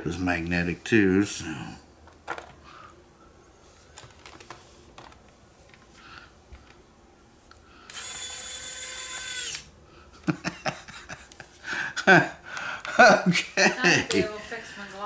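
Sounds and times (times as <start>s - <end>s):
electric screwdriver whining: 7.9s - 9.7s.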